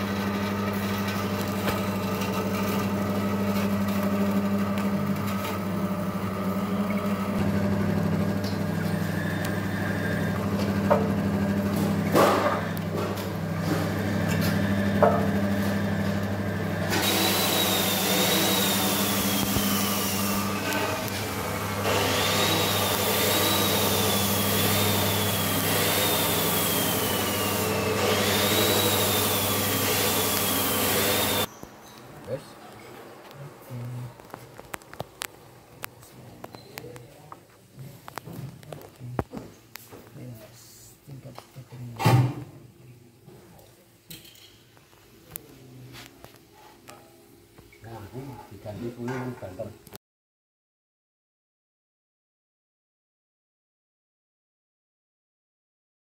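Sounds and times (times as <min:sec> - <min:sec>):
screw press motor hum: 0:00.0 - 0:31.5.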